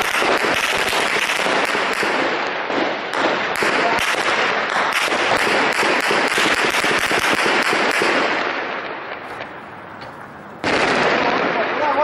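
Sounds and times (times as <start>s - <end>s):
intense gunfire: 0.0s - 12.0s.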